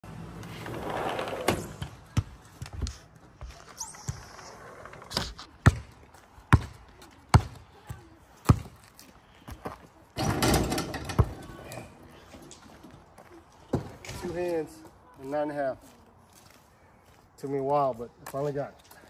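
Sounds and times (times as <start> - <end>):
basketball bouncing: 5.6 - 8.8.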